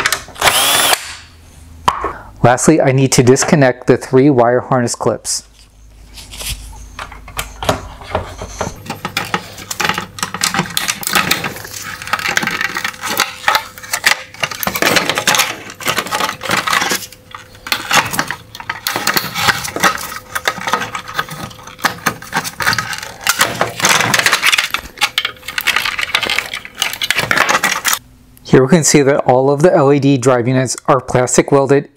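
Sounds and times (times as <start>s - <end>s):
plastic and metal parts clattering: 6.9s - 28.0s.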